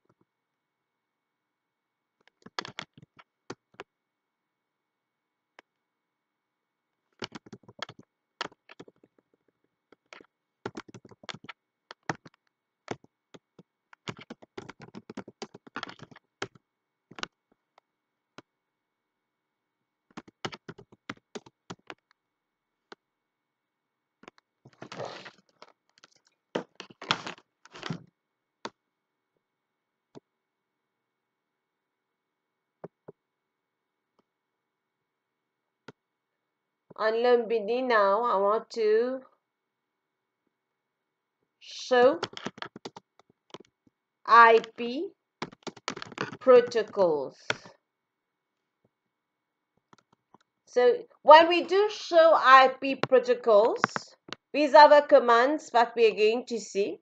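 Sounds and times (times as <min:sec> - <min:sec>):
keyboard typing clicks: 0:10.0 - 0:13.1, 0:14.0 - 0:17.3, 0:20.1 - 0:22.0.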